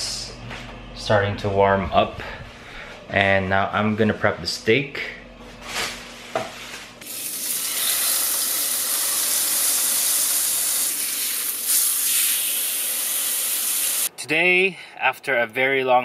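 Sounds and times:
steak sizzling in skillet: 7.0 - 14.1.

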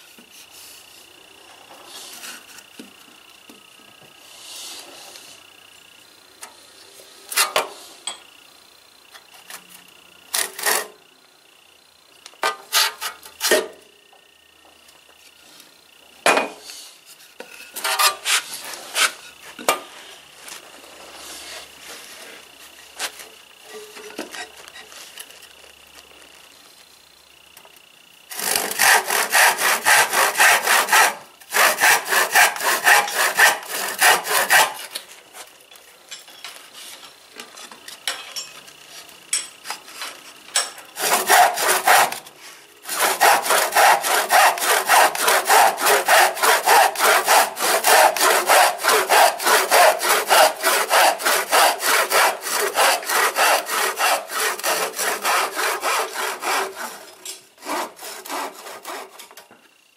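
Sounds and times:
hand saw cutting wood: 10.3 - 11.0, 12.4 - 13.8, 17.7 - 19.8, 28.3 - 35.1, 41.0 - 59.4.

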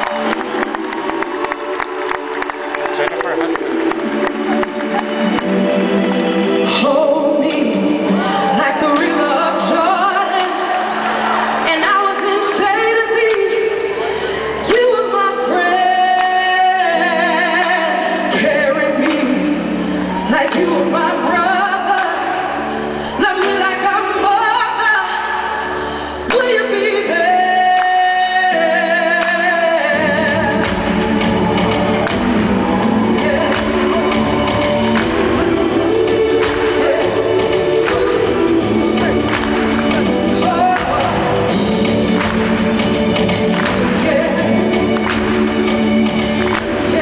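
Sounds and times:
woman singing a slow ballad: 6.4 - 41.7, 43.6 - 47.0
band with bass: 25.2 - 47.0.

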